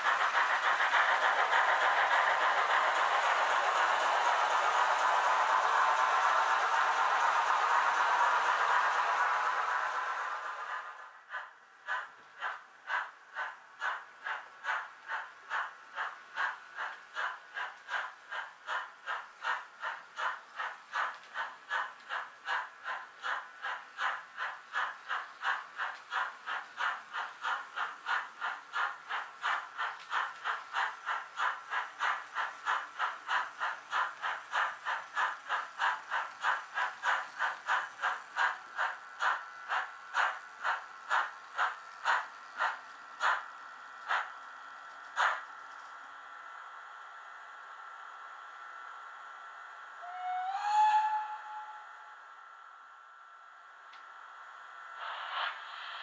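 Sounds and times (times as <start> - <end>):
steam exhaust chuffs from loudspeaker: 54.9 - 56.0.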